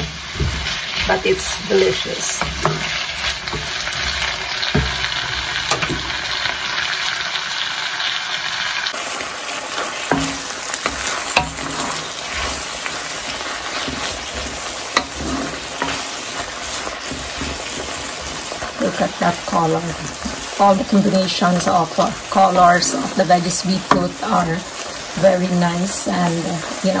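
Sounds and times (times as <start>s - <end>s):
wooden spoon scraping pan: 0.0s - 5.4s, 9.7s - 23.2s
stir-fry sizzling in wok: 0.0s - 27.0s
spoon knocking against wok: 2.4s - 5.1s, 10.1s - 12.1s.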